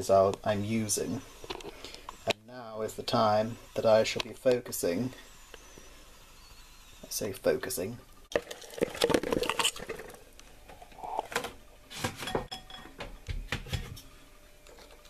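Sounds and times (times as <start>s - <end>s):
bowls clinking together: 12.2s - 13.0s.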